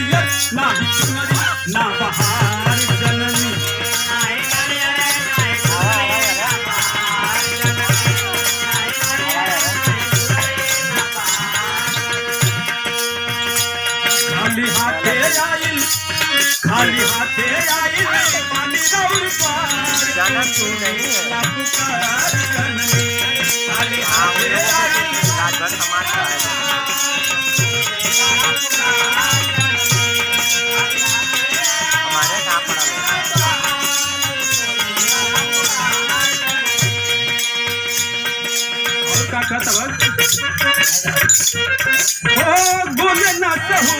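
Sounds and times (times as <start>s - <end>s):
drum beats: 0.0s - 43.9s.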